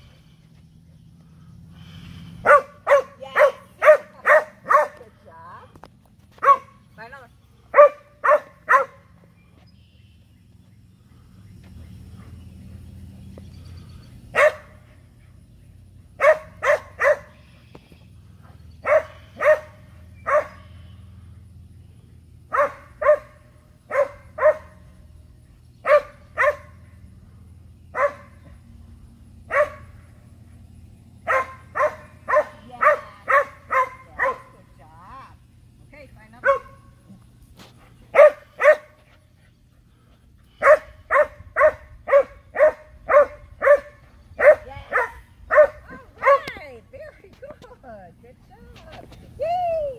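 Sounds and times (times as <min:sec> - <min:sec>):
dog barking: 0:02.4 - 0:05.0, 0:06.4 - 0:06.8, 0:07.7 - 0:09.0, 0:14.4 - 0:14.7, 0:16.2 - 0:17.4, 0:18.8 - 0:20.7, 0:22.5 - 0:24.8, 0:25.8 - 0:26.8, 0:27.9 - 0:28.4, 0:29.5 - 0:29.9, 0:31.2 - 0:34.5, 0:36.4 - 0:36.8, 0:38.1 - 0:38.9, 0:40.6 - 0:46.5.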